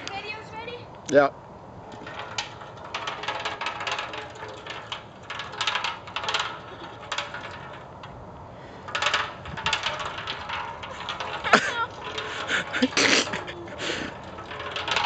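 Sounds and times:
lawn roller rattling and clinking: 1.8 - 15.0.

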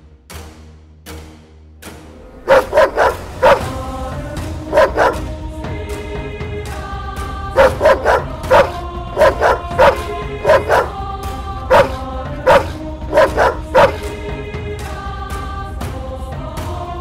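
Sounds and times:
background music sustained tones: 0.0 - 17.0
large dog barking: 2.4 - 3.8, 4.7 - 5.3, 7.6 - 11.0, 11.6 - 14.2.

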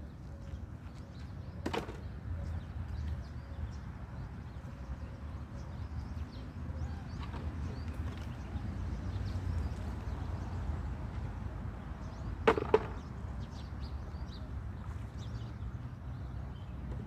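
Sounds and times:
plastic knocks: 12.4 - 13.0.

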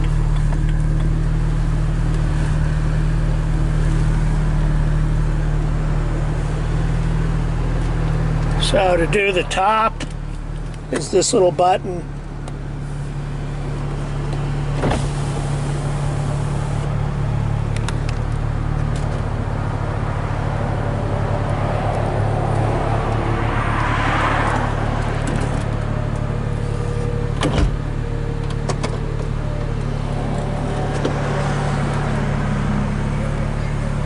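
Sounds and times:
roof latching clunk: 27.4 - 29.1.

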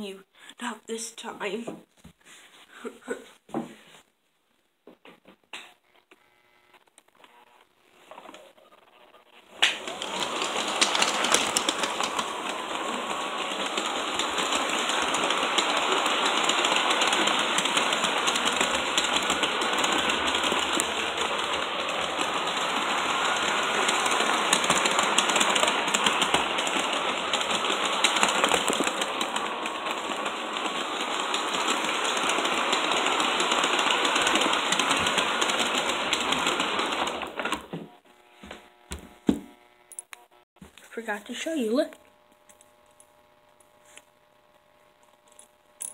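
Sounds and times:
model train motor whirring: 9.4 - 37.6
wheels clattering on rails: 9.6 - 37.7.

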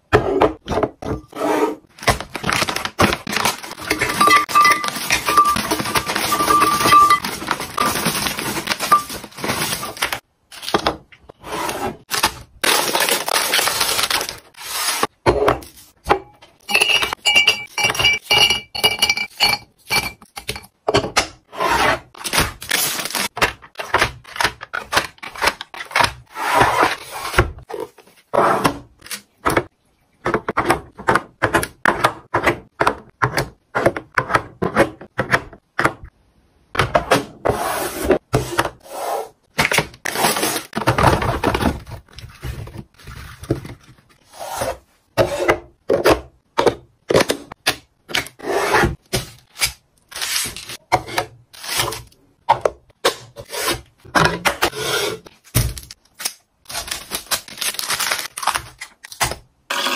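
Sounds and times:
plastic containers clacking: 2.0 - 10.2
glass jar and lid clinking: 16.6 - 20.7.

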